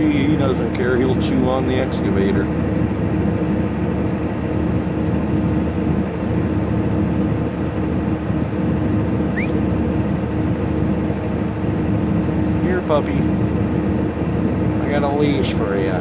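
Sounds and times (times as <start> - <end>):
diesel engine idling: 0.0 - 16.0
short rising chirp: 9.3 - 9.6.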